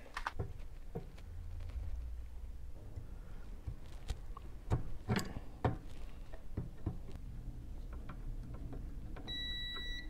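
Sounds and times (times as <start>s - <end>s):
multimeter continuity beep: 9.3s - 10.0s.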